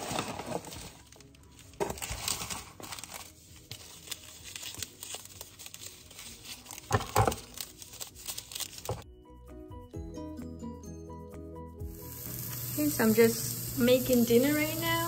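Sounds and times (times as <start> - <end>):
cardboard packaging rustling: 0.0 - 9.0.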